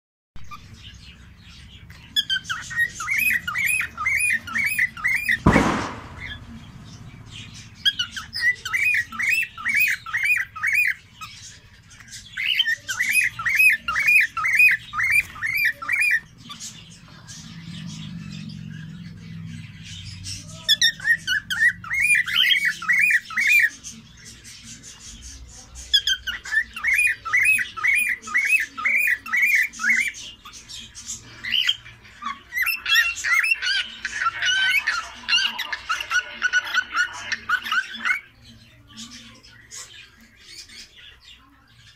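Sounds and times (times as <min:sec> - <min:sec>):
cockatiel chirping: 0:01.6 - 0:06.4, 0:07.8 - 0:16.8, 0:20.5 - 0:23.8, 0:24.5 - 0:38.3
sharp knock: 0:05.4 - 0:06.4.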